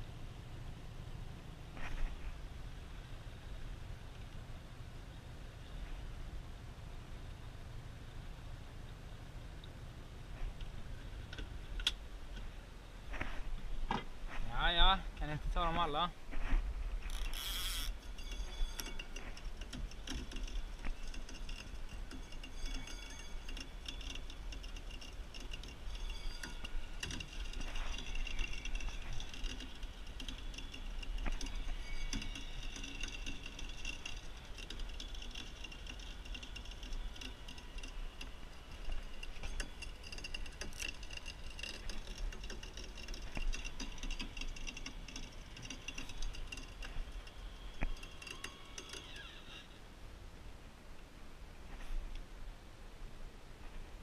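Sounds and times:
gear rattling and ticking: 17.0s - 49.2s.

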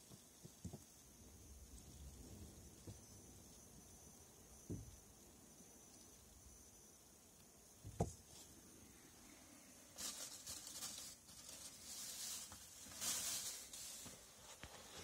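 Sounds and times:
dull thump: 4.6s - 5.0s, 7.8s - 8.2s
rustling: 7.9s - 15.0s.

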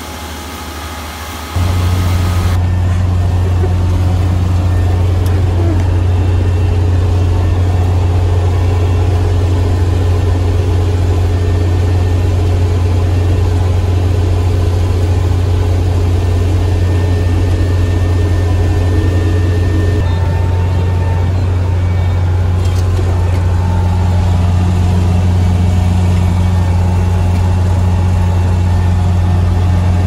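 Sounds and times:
combine harvester engine drone: 0.0s - 30.0s.

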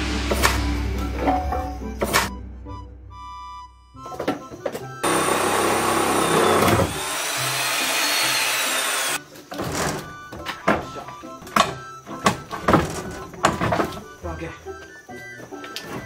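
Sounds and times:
power tool cutting timber: 5.0s - 9.2s.

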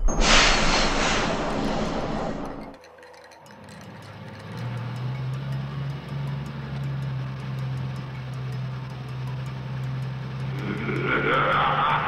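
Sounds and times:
cartoon motor drone: 5.8s - 12.0s.

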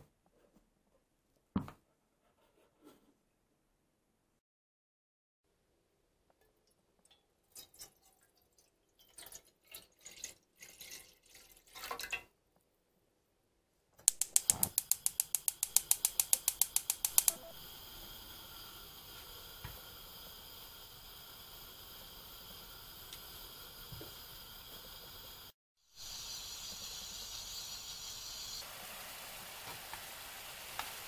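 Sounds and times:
water splashing into a pan: 7.0s - 12.4s, 28.6s - 31.0s
gas stove igniter clicking: 14.1s - 17.9s
gas burner hissing: 14.1s - 31.0s.

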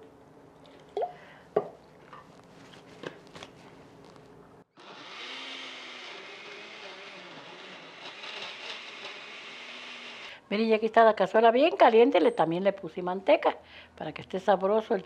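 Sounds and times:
blender grinding: 4.7s - 10.4s.

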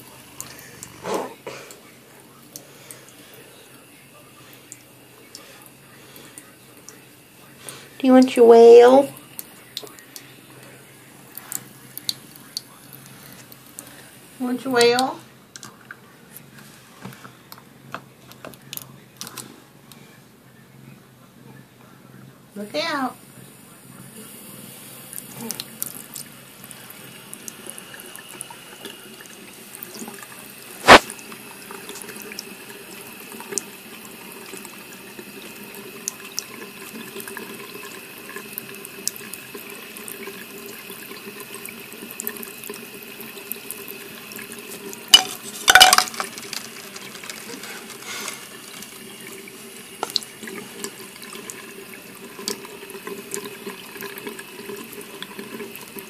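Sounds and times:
faucet stream splashing into basin: 25.0s - 56.0s.

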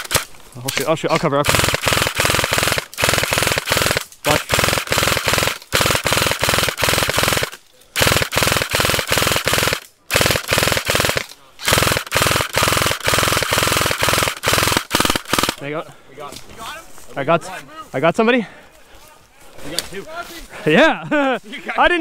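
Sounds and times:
airsoft gun firing full-auto: 0.0s - 0.3s, 1.4s - 15.6s.

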